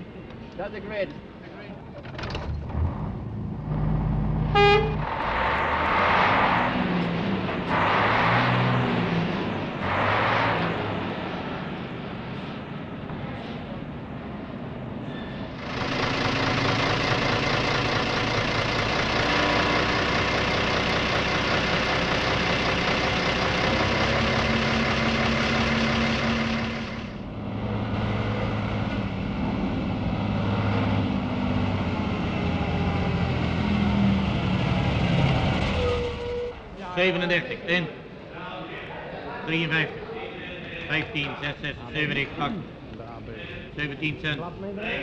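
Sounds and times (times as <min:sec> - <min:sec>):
truck engine running: 0:01.9 - 0:12.4, 0:15.4 - 0:36.8.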